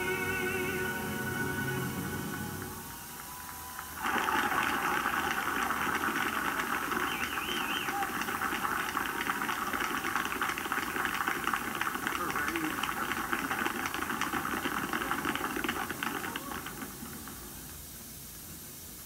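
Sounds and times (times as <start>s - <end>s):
outdoor crowd applause: 0.0s - 17.8s.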